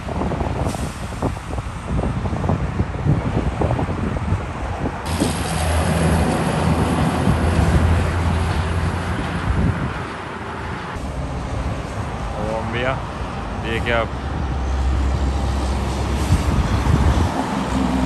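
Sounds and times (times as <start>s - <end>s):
tyre and traffic noise: 0.0s - 18.0s
truck diesel engine passing: 5.0s - 18.0s.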